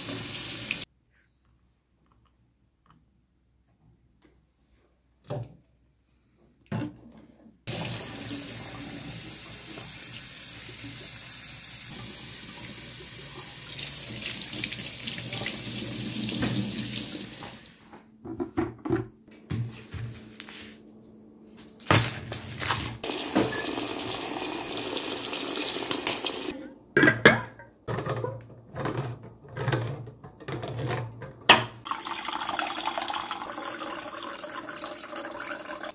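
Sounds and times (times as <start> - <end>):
faucet water splashing into sink: 7.7 - 17.6, 23.0 - 26.5, 31.9 - 35.9.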